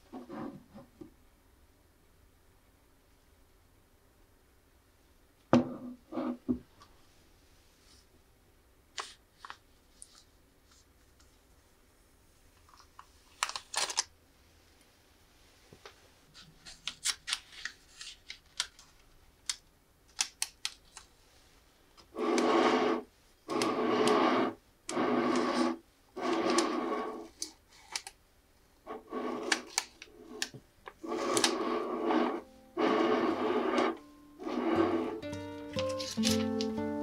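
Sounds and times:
plastic film crackling: 12.7 - 14.1, 35.7 - 36.9
plate scraping on wooden table: 22.2 - 27.3, 28.9 - 30.4, 31.0 - 35.2.

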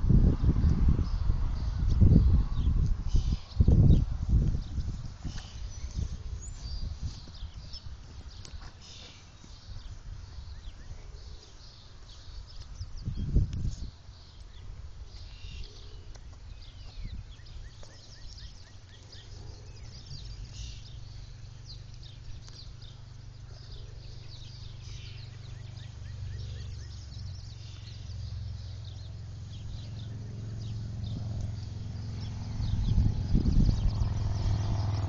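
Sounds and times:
birds chirping: 0.4 - 35.0
low rumble: 16.5 - 35.0.

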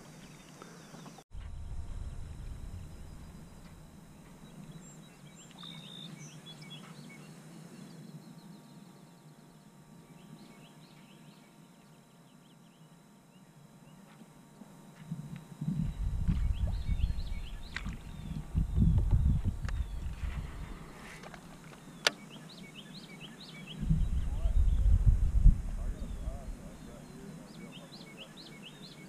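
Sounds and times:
low rumble: 1.3 - 5.4, 15.6 - 20.9, 23.8 - 26.8.

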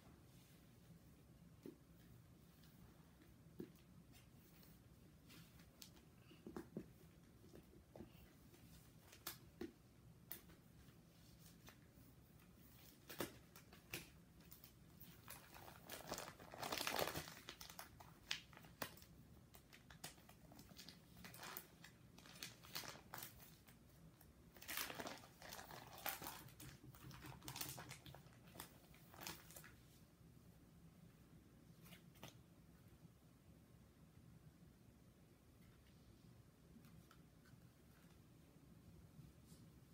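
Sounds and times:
plastic binder pages rustling: 12.6 - 23.8, 24.5 - 29.9.

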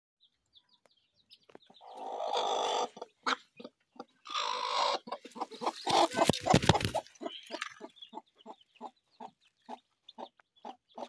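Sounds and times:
hen giving harsh calls: 1.8 - 8.0.

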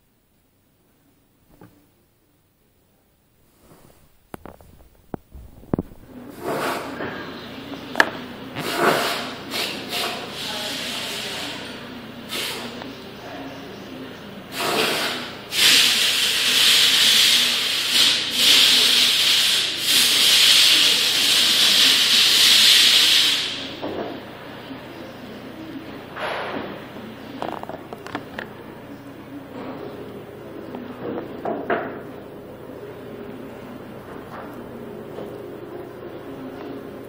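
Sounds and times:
loud hiss-like rubbing: 3.5 - 7.0, 8.0 - 12.8, 14.5 - 23.8
hands handling plastic parts: 27.4 - 28.6.

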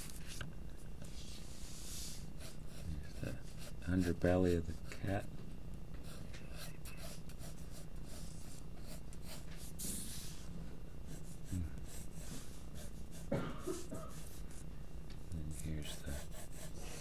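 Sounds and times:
steady low hum: 0.0 - 17.0
pencil scratching on paper: 1.1 - 5.2, 6.0 - 10.5, 11.1 - 13.3, 15.5 - 17.0.

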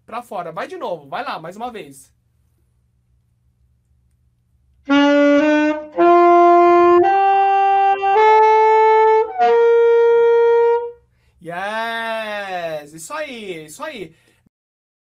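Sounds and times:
alto saxophone rising scale: 4.8 - 11.0.

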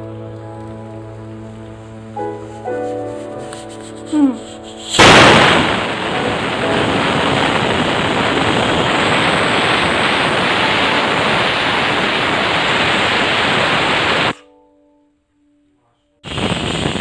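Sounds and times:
pressure cooker steam hissing: 4.8 - 14.4, 16.3 - 17.0.

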